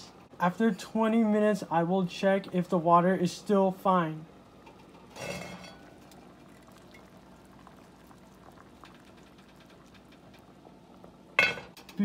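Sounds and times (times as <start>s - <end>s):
water boiling with small pops: 4.3s - 12.0s.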